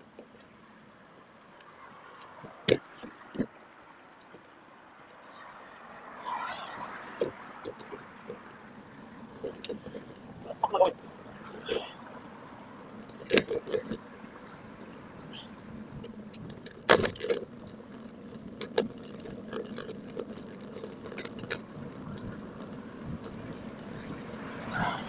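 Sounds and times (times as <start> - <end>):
bicycle rattling over road: 0.0 - 25.0
wind and tyre noise: 0.0 - 25.0
metallic jingling ticks: 16.0 - 25.0.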